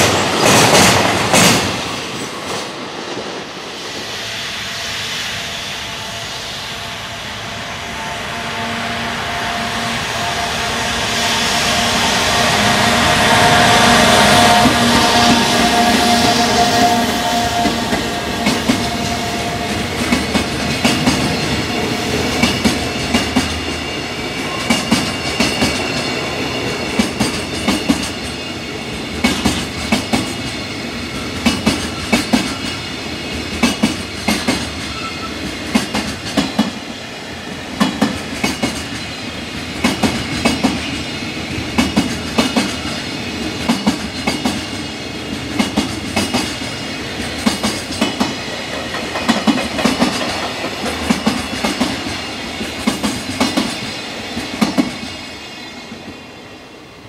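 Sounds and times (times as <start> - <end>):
train rolling rumble: 0.0 - 56.2
train wheels clattering over rail joint: 33.6 - 36.8, 37.8 - 39.1, 45.5 - 55.2.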